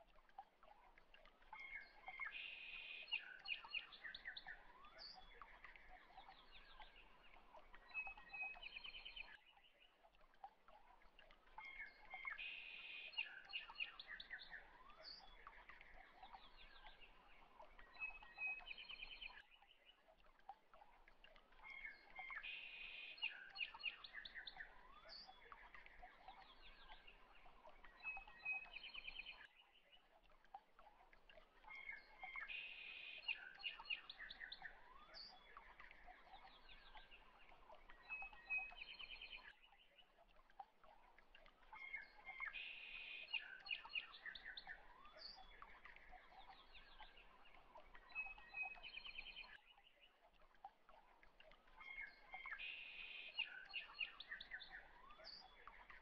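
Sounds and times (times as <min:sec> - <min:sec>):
birds chirping and trilling: 0:31.6 - 0:40.1, 0:41.1 - 0:56.0.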